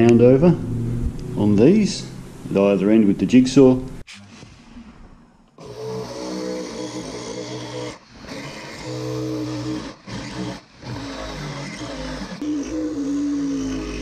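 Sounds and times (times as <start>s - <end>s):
jigsaw cutting wood: 5.6s - 14.0s.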